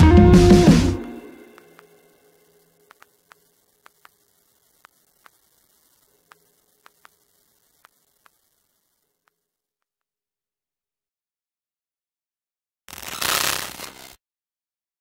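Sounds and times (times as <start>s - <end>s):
faint electrical hum: 1.0s - 9.3s
faint clicks: 1.3s - 9.5s.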